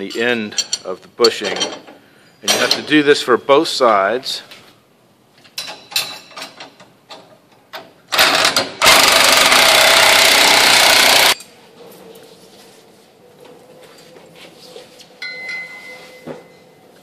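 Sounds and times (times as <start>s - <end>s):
impact wrench hammering: 8.2s - 11.4s.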